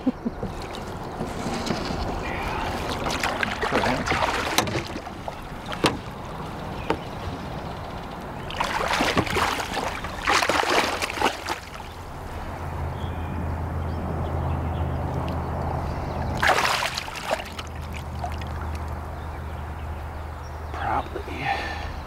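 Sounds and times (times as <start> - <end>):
water splashing in a net: 2.3 - 6.3, 8.4 - 12.0, 16.4 - 19.0.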